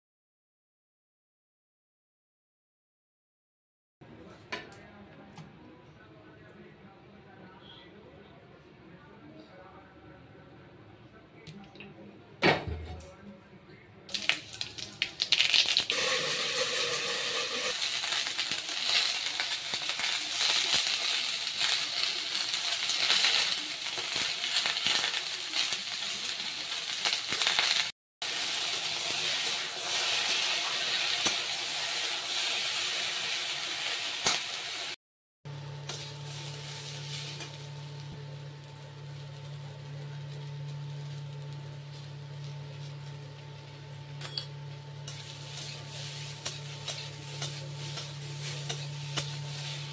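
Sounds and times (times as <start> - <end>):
vegetables sizzling in oil: 14.1 - 49.9
metal spatula clicks and scrapes: 45.1 - 49.8.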